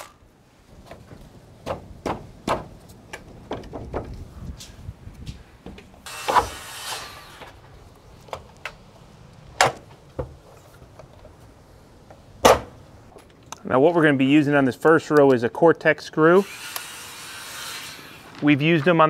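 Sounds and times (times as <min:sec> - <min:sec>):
sharp knocks on wood: 0:01.6 - 0:02.7
deck board scraping slide: 0:06.0 - 0:07.7, 0:16.5 - 0:18.5.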